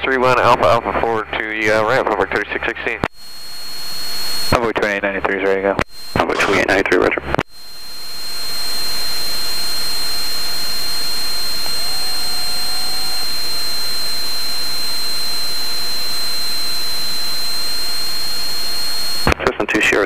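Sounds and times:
radio static hiss: 0:03.0 - 0:20.0
high-pitched whine: 0:03.1 - 0:04.8, 0:05.8 - 0:19.4.

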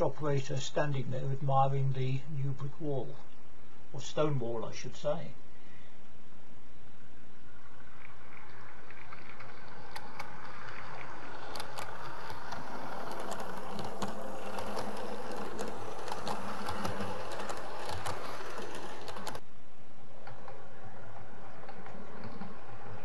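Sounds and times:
model train motor hum: 0:07.1 - 0:19.4, 0:20.0 - 0:23.0
wheels clicking over rail joints: 0:07.9 - 0:19.4, 0:20.1 - 0:23.0.

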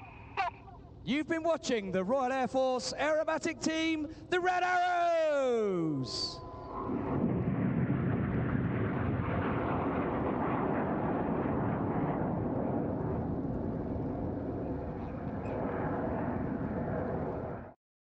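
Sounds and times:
jet roar with deep rumble: 0:05.8 - 0:17.8.

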